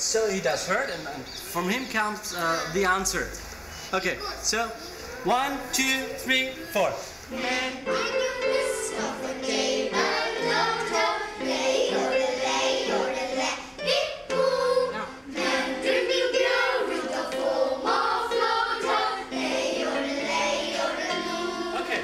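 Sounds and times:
children singing a yodel: 0:05.0 - 0:22.0.

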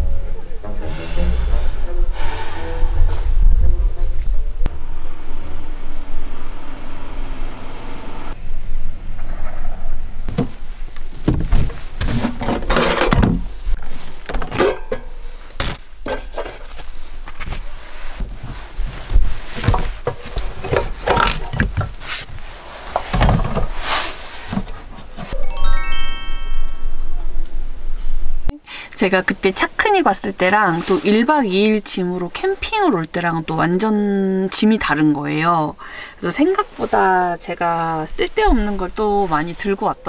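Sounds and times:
low steady rumble: 0:00.0 - 0:11.2, 0:26.3 - 0:28.5
rustling: 0:10.3 - 0:25.4
steel containers clinking: 0:14.5 - 0:15.4.

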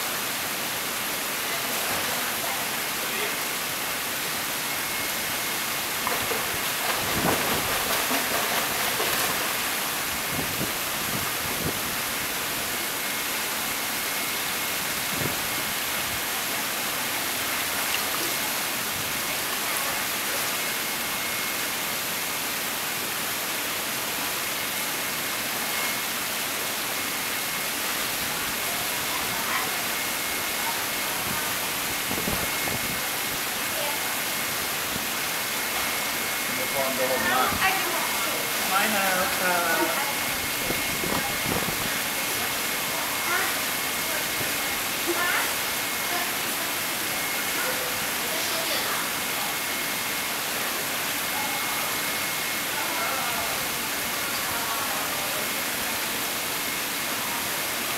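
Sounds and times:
running pool water: 0:00.0 - 0:57.9
faint high whine: 0:01.4 - 0:08.4, 0:24.2 - 0:55.4.

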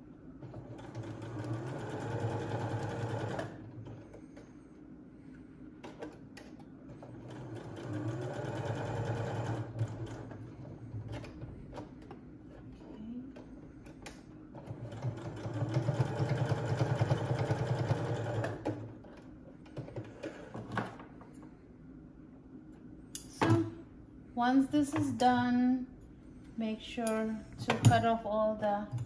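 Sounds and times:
sewing machine stitching: 0:00.4 - 0:04.2, 0:06.9 - 0:10.5, 0:14.5 - 0:18.9.

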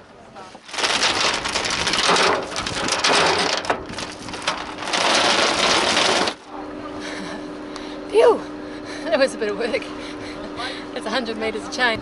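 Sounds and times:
anchor chain rattling over metal: 0:00.7 - 0:06.4.

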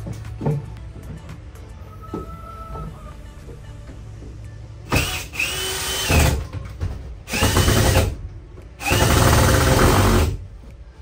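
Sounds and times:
cordless drill driving screws: 0:04.9 - 0:06.4.

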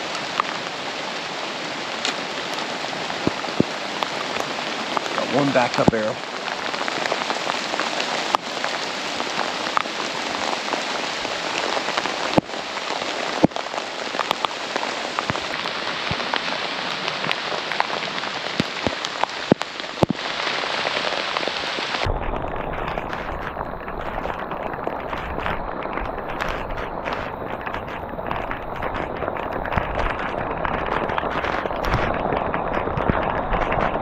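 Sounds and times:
heavy rain falling: 0:00.0 - 0:34.0
raindrops ticking near microphone: 0:00.0 - 0:34.0
low rumble: 0:22.0 - 0:34.0.

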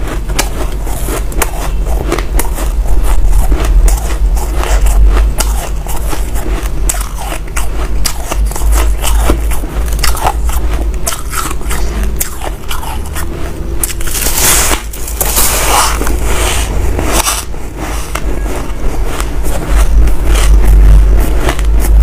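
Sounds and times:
ice crackling and crunching: 0:13.8 - 0:22.0.

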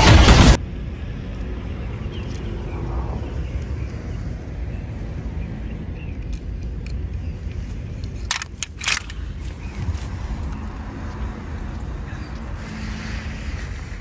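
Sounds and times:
low outdoor rumble: 0:00.0 - 0:14.0
sharp clicks: 0:06.0 - 0:10.6.

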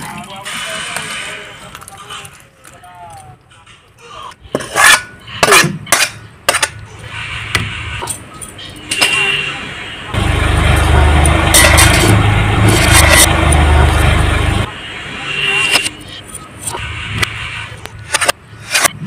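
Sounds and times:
loud rumble with hiss: 0:10.2 - 0:14.7.

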